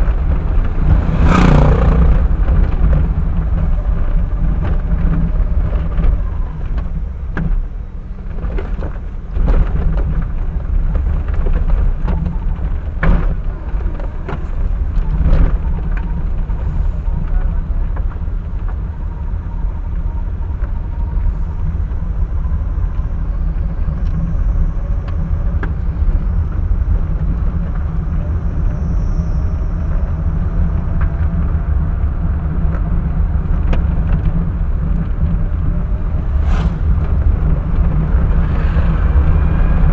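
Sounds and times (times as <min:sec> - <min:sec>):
car engine and road rumble: 0:00.0 - 0:39.9.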